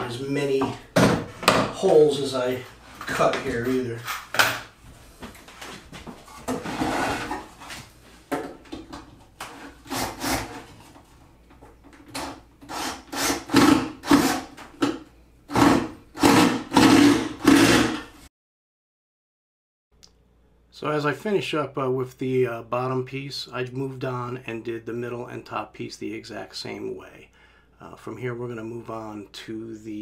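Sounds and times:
drill driving screws into wood: 0:12.2 - 0:14.6, 0:15.5 - 0:18.1.

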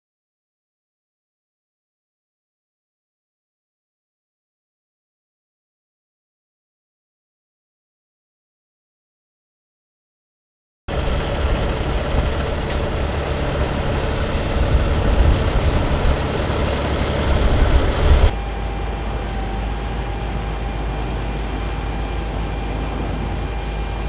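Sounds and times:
diesel truck engine rumbling: 0:10.9 - 0:24.0
faint steady whine: 0:10.9 - 0:24.0.

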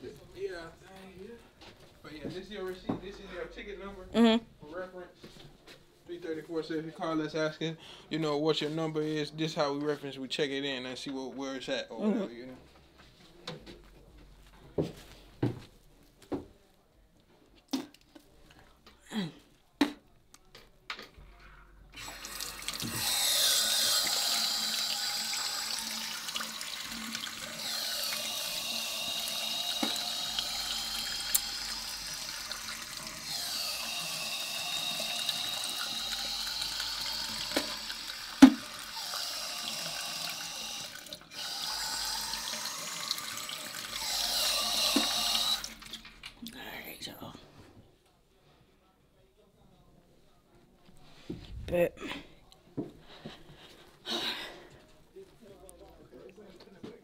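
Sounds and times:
tap running into a sink: 0:29.6 - 0:33.2, 0:34.6 - 0:38.9, 0:44.7 - 0:46.2.

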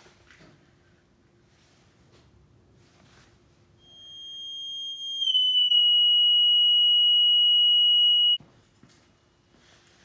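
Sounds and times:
high sine-wave test tone: 0:03.8 - 0:08.4.

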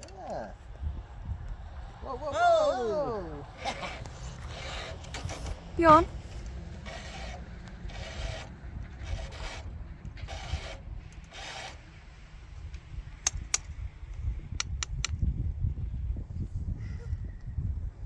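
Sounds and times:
file rasping on chainsaw chain: 0:03.6 - 0:06.1, 0:06.8 - 0:11.8
sharp clicks: 0:12.7 - 0:13.7, 0:14.5 - 0:15.2.

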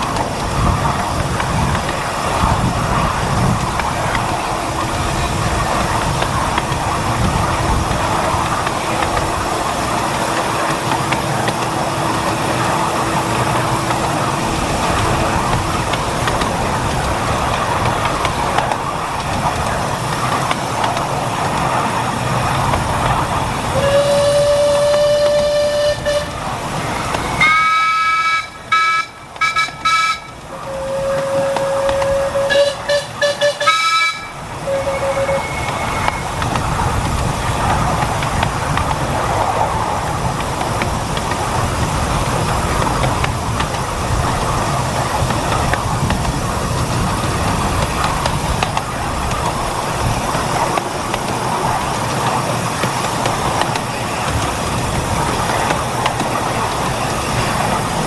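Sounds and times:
miniature train running on track: 0:00.0 - 0:58.0
low locomotive whistle: 0:23.6 - 0:26.6, 0:27.3 - 0:36.5
high locomotive whistle blasts: 0:23.7 - 0:26.5, 0:27.3 - 0:36.4.

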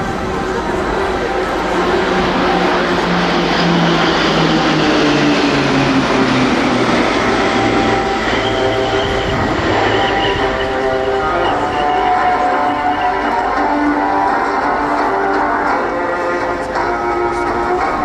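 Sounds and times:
turboprop aircraft flying past: 0:00.0 - 0:13.0.

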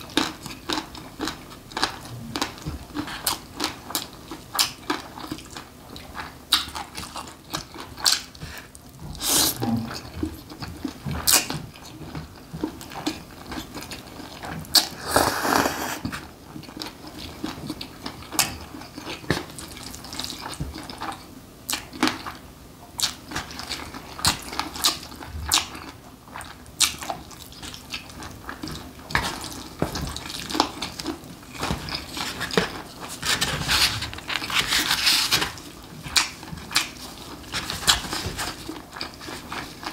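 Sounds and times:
wet chewing sounds: 0:00.0 - 0:22.4, 0:23.0 - 0:39.9.

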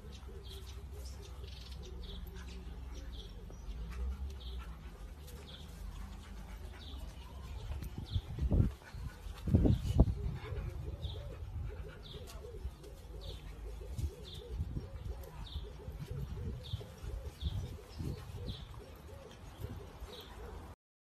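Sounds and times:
low wavering cooing: 0:09.6 - 0:20.8.

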